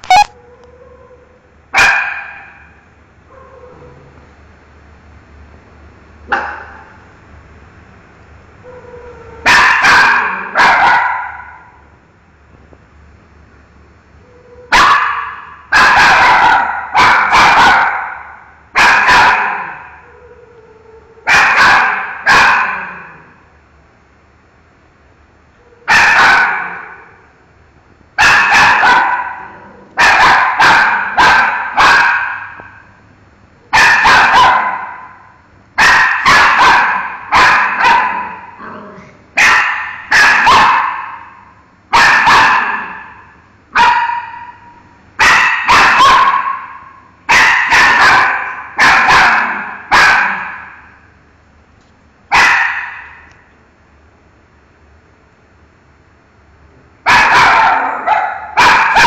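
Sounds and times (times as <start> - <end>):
dog barking: 1.8 - 4.1, 6.3 - 7.0, 9.4 - 11.8, 14.7 - 20.2, 21.2 - 23.3, 25.8 - 27.2, 28.2 - 32.9, 33.7 - 38.6, 39.4 - 51.0, 52.3 - 53.3, 57.1 - 59.0.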